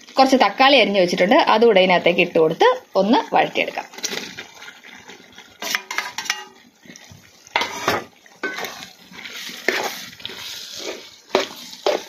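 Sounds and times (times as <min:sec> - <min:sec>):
metal spoon scraping a pot: 0:05.6 - 0:06.6, 0:07.6 - 0:12.0.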